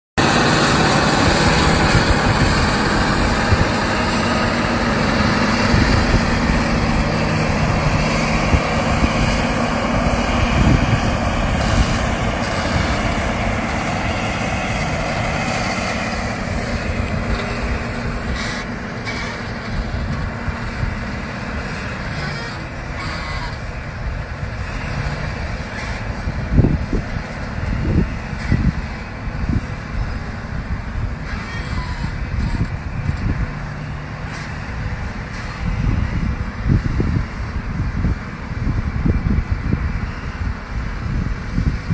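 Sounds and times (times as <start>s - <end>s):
tractor diesel engine under load: 0.2s - 41.9s.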